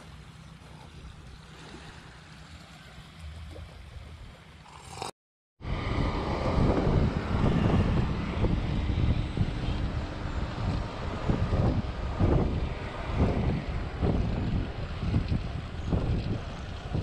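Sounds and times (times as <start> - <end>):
shore ambience: 0.0 - 17.0
wind buffeting microphone: 5.6 - 17.0.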